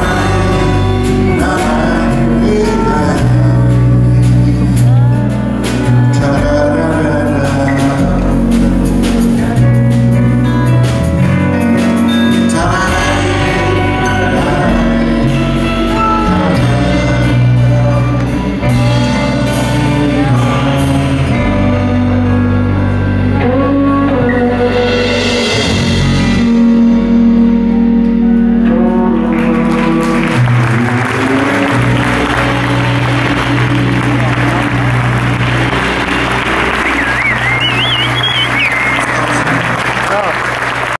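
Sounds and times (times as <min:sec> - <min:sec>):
man singing: 0:00.0 - 0:10.5, 0:11.7 - 0:27.6, 0:28.4 - 0:36.0
audience applause: 0:29.2 - 0:40.9.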